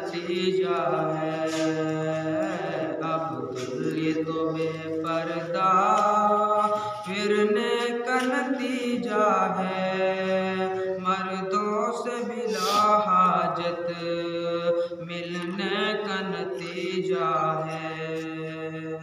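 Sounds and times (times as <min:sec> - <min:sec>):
man singing into a microphone: 0:00.0 - 0:19.0.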